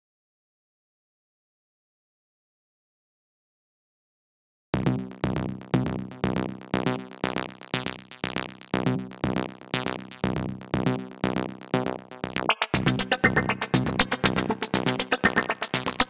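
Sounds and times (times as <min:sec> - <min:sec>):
electronic music with steady beat: 0:04.8 - 0:16.0.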